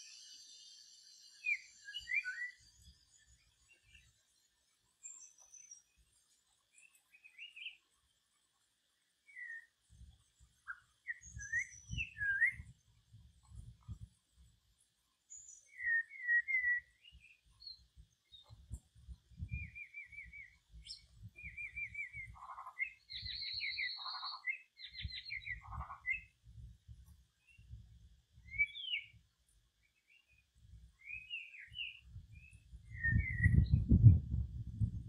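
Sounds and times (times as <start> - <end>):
bird chirps and trilled calls: 19.4 - 26.3, 28.5 - 29.1.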